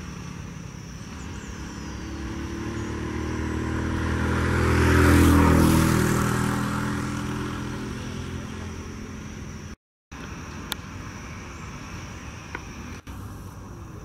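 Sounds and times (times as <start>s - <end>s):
vehicle driving past: 0.0s - 9.8s.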